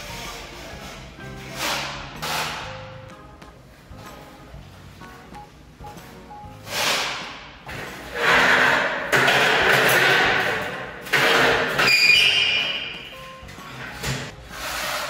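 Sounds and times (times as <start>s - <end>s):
steel blade scraping wall filler: 14.4s - 15.0s.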